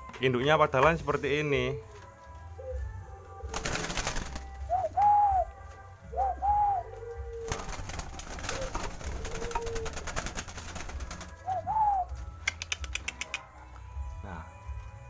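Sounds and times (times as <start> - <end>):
doves cooing: 2.5 - 12.2
crackling and clicking: 12.4 - 13.5.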